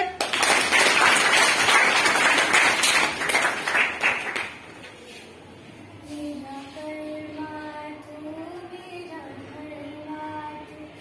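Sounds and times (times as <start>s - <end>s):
children applauding: 0.2s - 4.6s.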